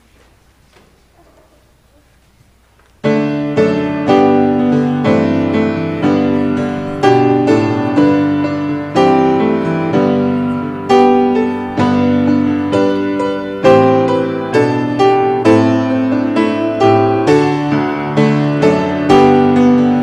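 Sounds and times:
piano playing slow chords: 3.0s - 20.0s.

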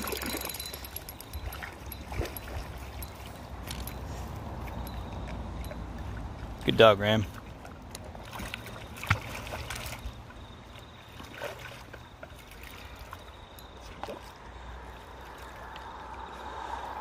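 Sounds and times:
short water splashes: 0.0s - 17.0s
water sloshing around dog: 0.0s - 17.0s.

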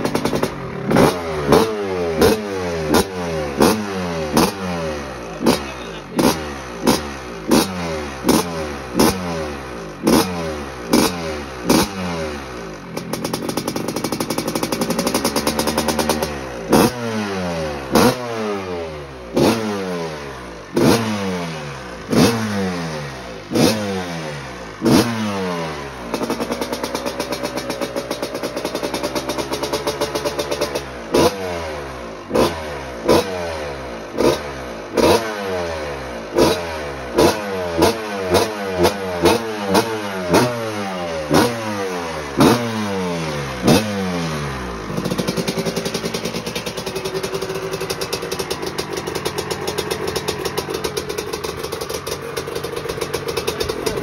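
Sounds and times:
two-stroke engine revving and idling: 0.0s - 54.0s.

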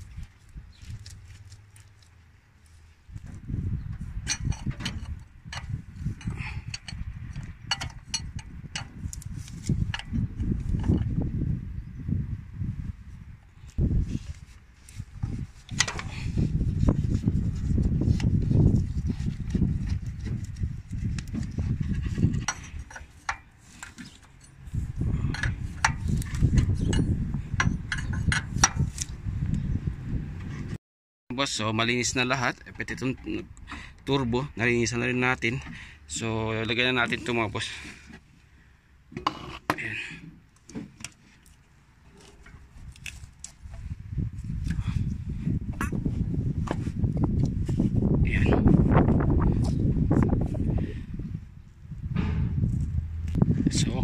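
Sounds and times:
low rumble: 43.8s - 54.0s.

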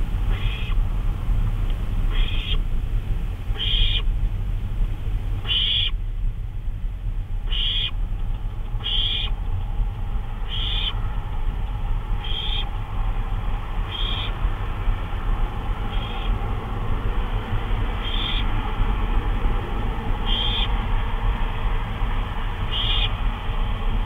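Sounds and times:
steady low hum: 0.0s - 24.0s
owl raspy calls: 0.3s - 0.8s, 2.1s - 2.6s, 3.5s - 4.1s, 5.4s - 6.0s, 7.4s - 8.0s, 8.8s - 9.4s, 10.4s - 11.0s, 12.2s - 12.8s, 13.8s - 14.4s, 15.9s - 16.4s, 17.9s - 18.6s, 20.2s - 20.8s, 22.7s - 23.2s.

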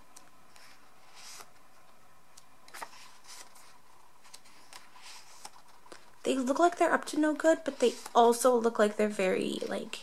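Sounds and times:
paper pages rustling: 0.1s - 8.7s.

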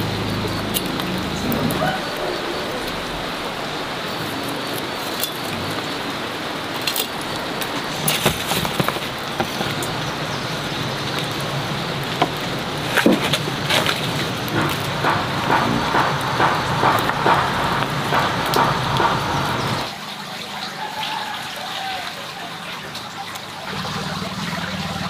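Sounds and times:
steady rushing hiss: 0.0s - 20.1s.

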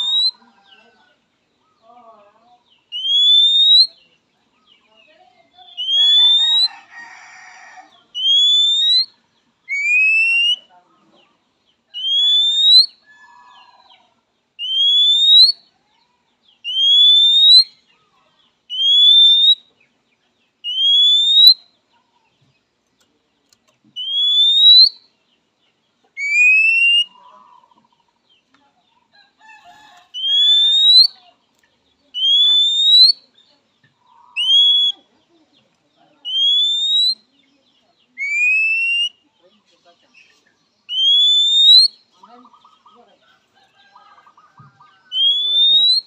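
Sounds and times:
faint lower bird chirps: 0.0s - 2.0s, 2.6s - 6.8s, 11.3s - 46.0s
bird whistle sliding upward: 30.2s - 31.1s, 45.2s - 46.0s.

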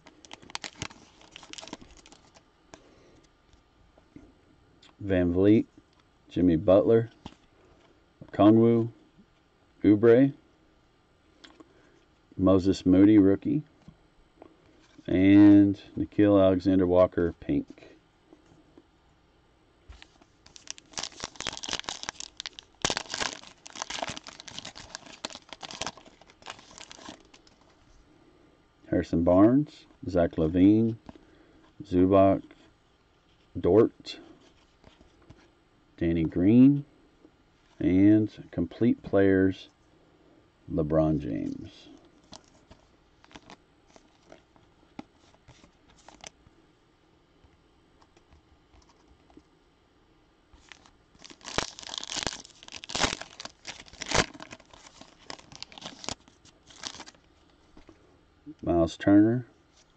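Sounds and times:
foil wrapper crinkling and tearing: 0.0s - 2.4s, 19.9s - 27.8s, 42.2s - 44.5s, 45.2s - 46.4s, 50.6s - 57.3s.

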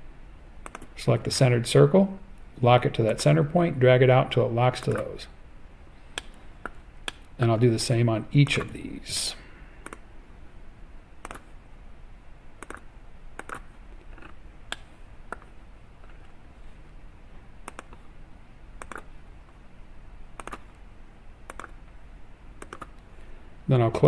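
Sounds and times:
computer mouse clicking: 0.6s - 0.9s, 4.8s - 5.1s, 9.8s - 10.0s, 11.2s - 11.5s, 12.6s - 16.2s, 17.6s - 18.0s, 18.8s - 19.1s, 20.4s - 20.8s, 21.4s - 21.8s, 22.6s - 23.0s.

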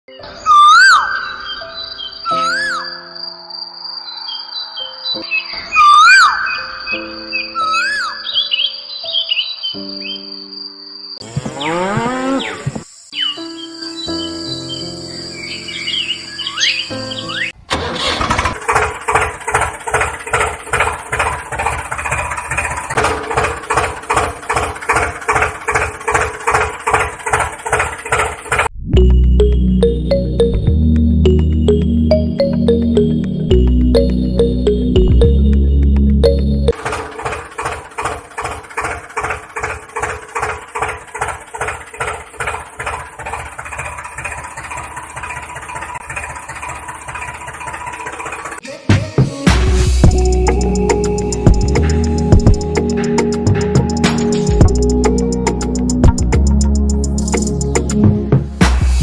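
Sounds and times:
tractor engine idling: 17.7s - 28.7s, 31.2s - 48.6s, 49.8s - 59.0s.

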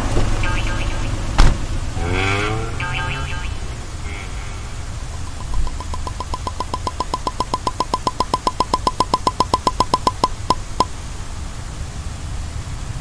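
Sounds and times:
cartoon toy car blips: 5.2s - 10.9s.

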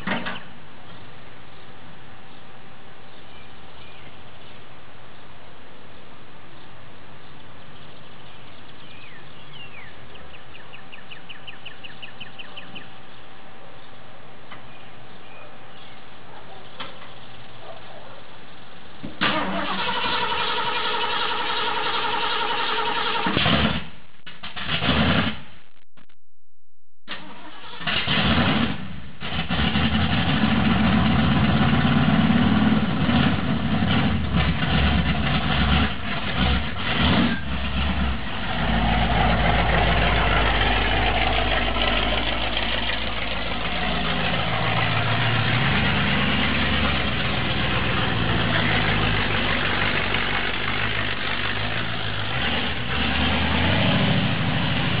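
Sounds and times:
truck engine starting and running: 18.9s - 25.8s, 27.1s - 55.0s
truck driving away: 27.3s - 55.0s.

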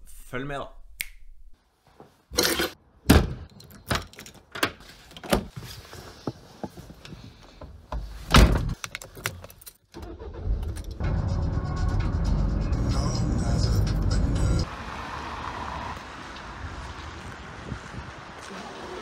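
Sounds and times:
car engine starting and idling: 9.9s - 15.1s.

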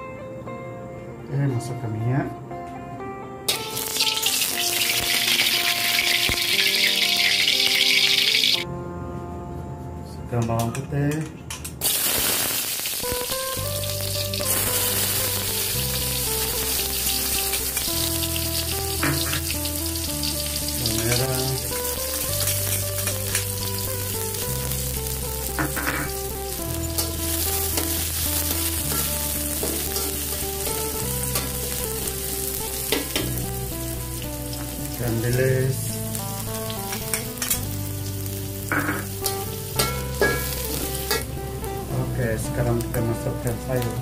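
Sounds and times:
garlic and onion sizzling in oil: 3.5s - 8.6s, 11.8s - 44.0s.

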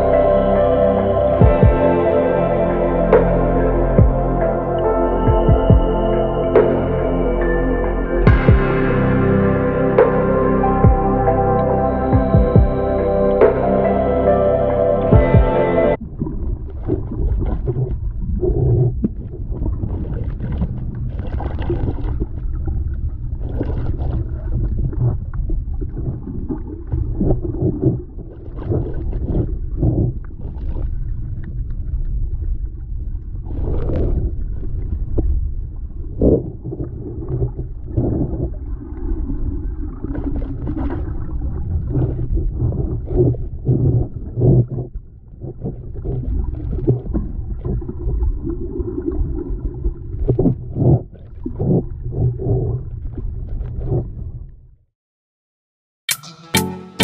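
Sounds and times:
underwater rumble of moving water: 0.0s - 54.9s
bubbling and sloshing: 16.0s - 54.8s.

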